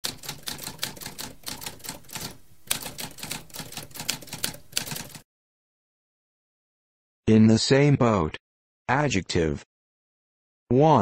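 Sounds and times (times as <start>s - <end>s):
typewriter keys clacking: 0.0s - 5.2s.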